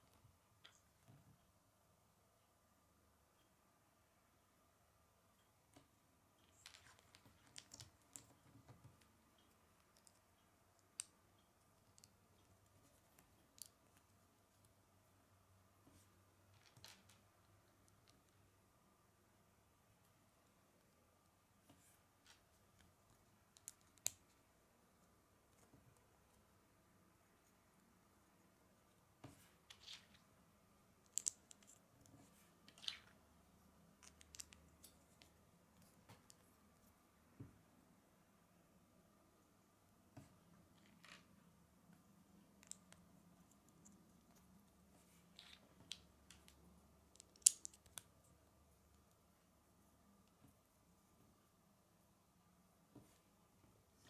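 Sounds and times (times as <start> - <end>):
plastic bricks clicking together: 31.0 - 31.8, 45.4 - 48.1.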